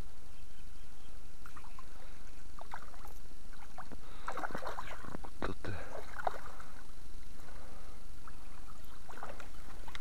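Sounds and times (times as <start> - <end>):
fish splashing at water surface: 2.6 - 6.8.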